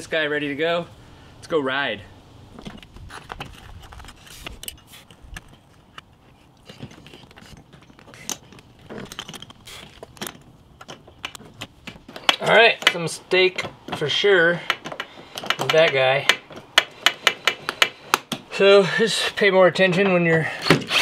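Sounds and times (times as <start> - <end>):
metal clinks and rattles: 6.8 - 12.4.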